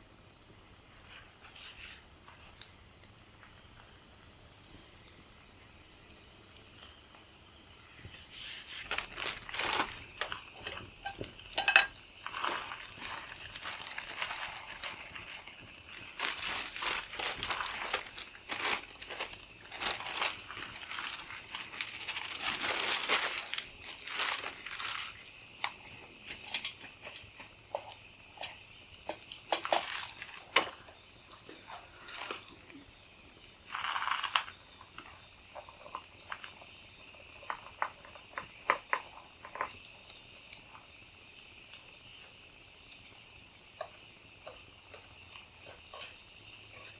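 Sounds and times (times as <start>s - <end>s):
hands crinkling and rustling: 8.2s - 32.8s, 33.7s - 39.8s.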